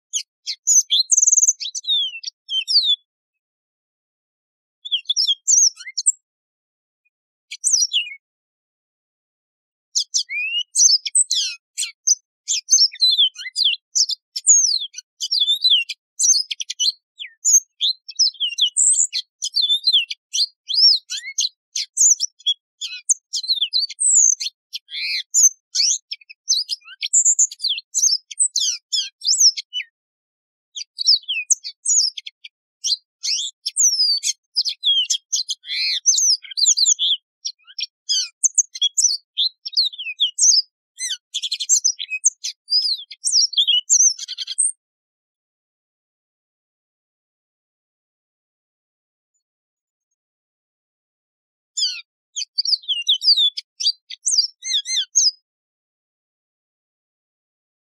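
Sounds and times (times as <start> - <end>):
canary singing: 0.0 - 3.1, 4.8 - 6.2, 7.5 - 8.2, 10.0 - 30.0, 30.8 - 44.8, 51.8 - 55.4.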